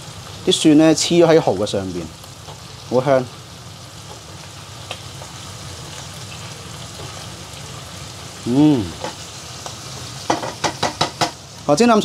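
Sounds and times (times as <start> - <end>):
oil sizzling in a pan: 0.0 - 12.0
person humming: 8.4 - 9.0.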